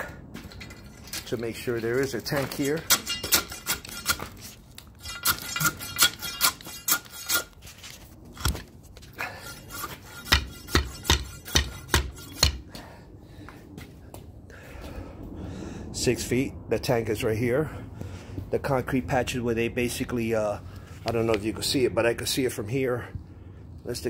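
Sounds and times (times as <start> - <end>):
metal rod clinking on metal: 2.4 - 4.2.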